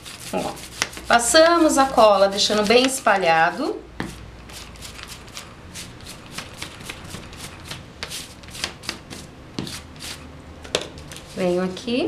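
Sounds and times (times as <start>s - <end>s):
glue roller crackling on cardboard: 0.0s - 3.0s, 4.0s - 10.2s.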